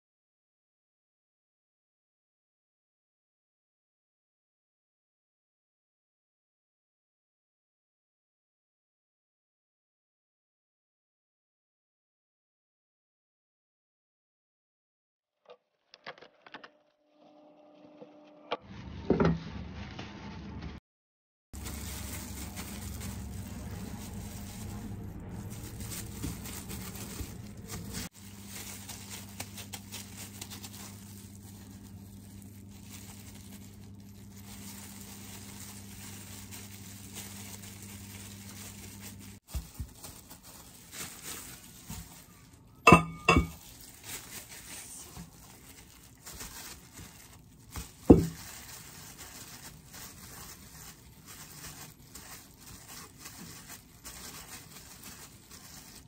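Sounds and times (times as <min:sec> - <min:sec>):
gloved hands rustling dough: 0:21.6 - 0:56.0.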